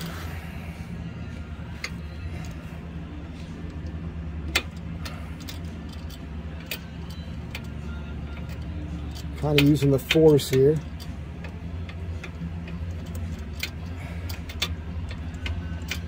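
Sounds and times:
steady low hum: 0.0s - 16.0s
metallic socket wrench clicks: 8.3s - 16.0s.

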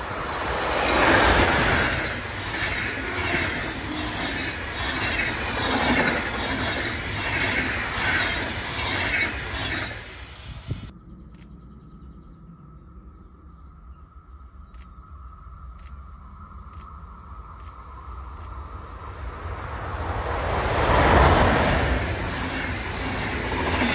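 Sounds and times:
train wheels rushing on rail: 0.0s - 10.9s, 18.2s - 23.9s
rhythmic clatter of train bogies: 0.4s - 10.9s, 20.4s - 23.9s.

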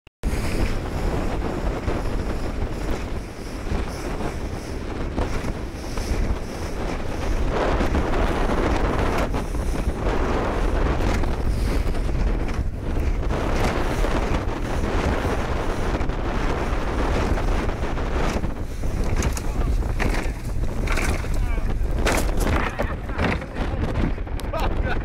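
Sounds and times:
water slapping against boat hull: 0.2s - 25.0s
wind buffeting microphone: 0.2s - 25.0s.

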